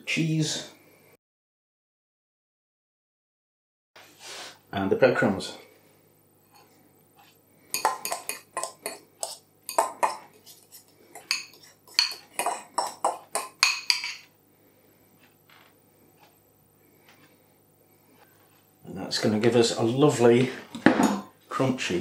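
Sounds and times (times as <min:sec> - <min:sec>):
metal fork scraping ceramic bowl: 0:06.5 - 0:14.3.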